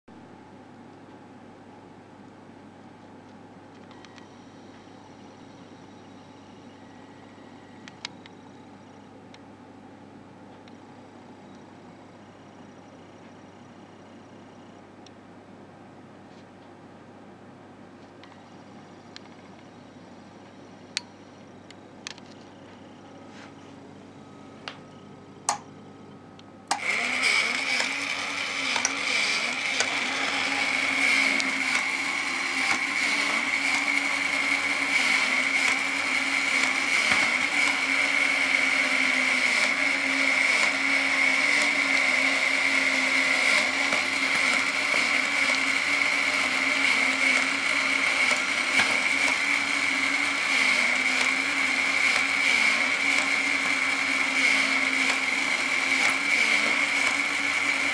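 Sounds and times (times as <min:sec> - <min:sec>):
small motor whirring with whine: 0:03.8 - 0:09.2, 0:10.6 - 0:14.8, 0:26.7 - 0:57.9
toy motor switch click: 0:26.7 - 0:30.4.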